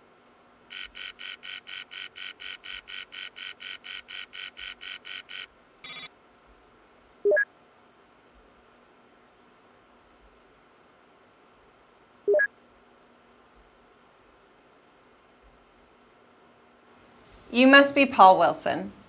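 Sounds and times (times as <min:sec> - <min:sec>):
rapid high beeping: 0:00.7 - 0:06.1.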